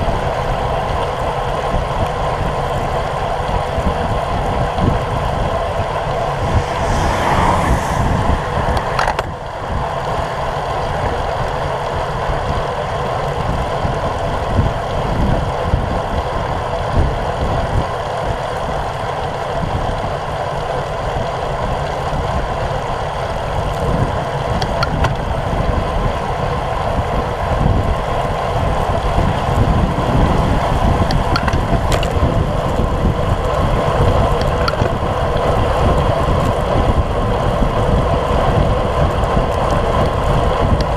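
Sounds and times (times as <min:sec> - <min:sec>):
wind rushing over microphone: 0:00.0 - 0:40.9
tyres hissing on wet pavement: 0:05.1 - 0:10.4.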